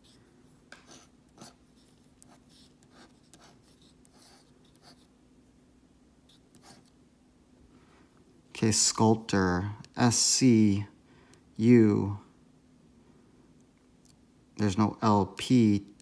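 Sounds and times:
faint steady hum: 0.0s - 16.0s
pen scratching on paper: 0.8s - 5.1s, 6.3s - 6.9s.

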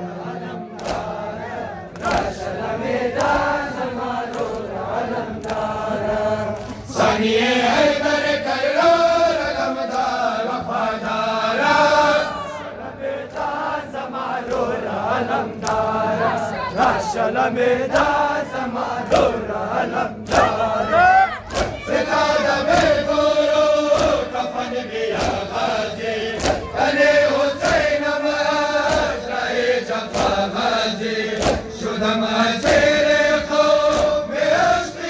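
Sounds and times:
crowd of men chanting: 0.0s - 35.0s
chest-beating slaps: 21.4s - 21.9s, 23.9s - 24.3s, 25.1s - 25.5s, 26.3s - 26.8s, 27.6s - 28.0s, 28.8s - 29.3s, 30.0s - 30.5s, 31.3s - 31.8s, 32.6s - 33.0s, 33.8s - 34.3s.

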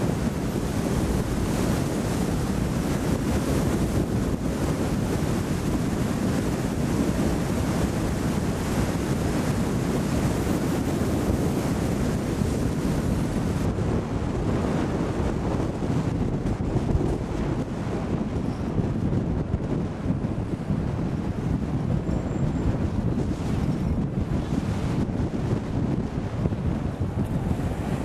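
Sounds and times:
road noise from moving car: 0.0s - 28.0s
wind on microphone: 0.0s - 28.0s.

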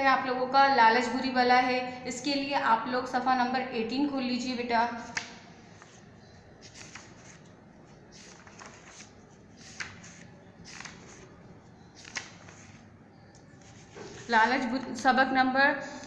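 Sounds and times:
book pages turning: 5.1s - 14.6s.

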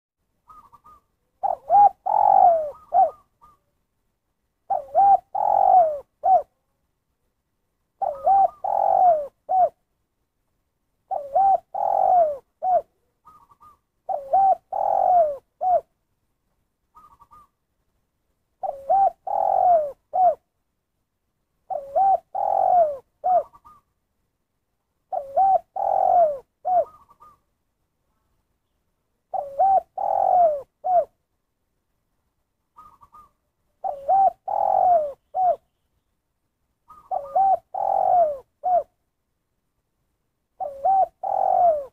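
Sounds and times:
dove cooing: 0.4s - 3.7s, 4.6s - 6.6s, 8.0s - 9.8s, 11.0s - 16.0s, 16.9s - 17.6s, 18.6s - 20.5s, 21.6s - 23.9s, 25.1s - 27.5s, 29.3s - 31.2s, 32.7s - 35.7s, 36.8s - 39.0s, 40.5s - 41.9s.

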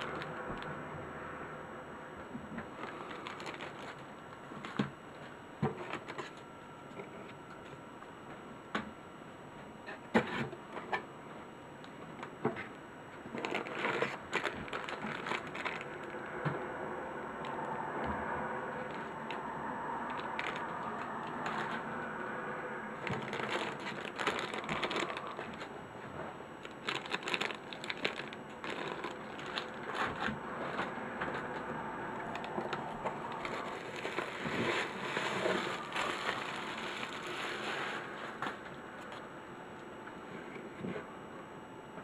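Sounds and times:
cardboard and plastic rustling: 0.0s - 0.7s, 2.6s - 6.4s, 12.1s - 16.2s, 18.8s - 19.5s, 20.1s - 21.9s, 23.0s - 31.6s, 32.2s - 39.2s.

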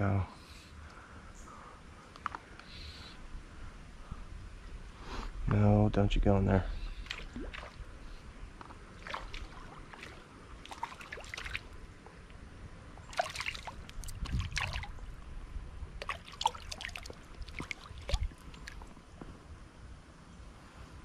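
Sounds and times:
water splashing and trickling: 6.9s - 12.0s, 12.8s - 19.0s.

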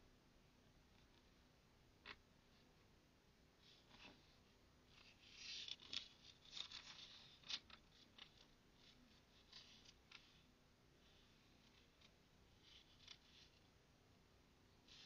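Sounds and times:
book pages rustling: 3.6s - 10.5s.

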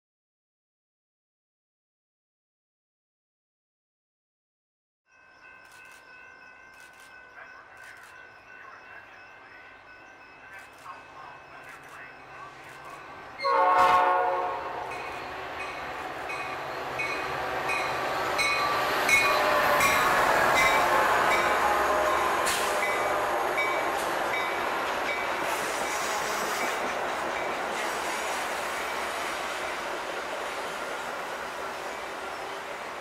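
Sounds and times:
crossing bell ringing: 5.1s - 25.6s
train horn blast: 13.4s - 15.1s, 19.2s - 24.0s, 25.5s - 26.9s
train wheels rumbling and clacking: 14.8s - 33.0s.

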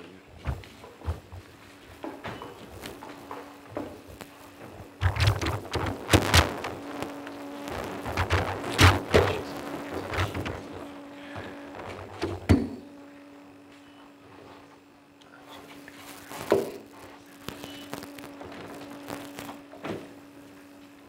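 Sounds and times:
low steady hum: 0.0s - 21.0s
microphones being handled: 0.4s - 12.9s.

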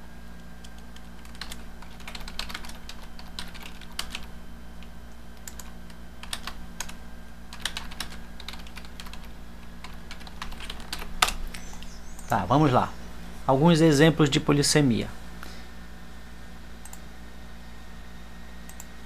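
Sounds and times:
steady low hum: 0.0s - 19.0s
typing on a keyboard: 0.6s - 4.3s, 5.4s - 11.4s.

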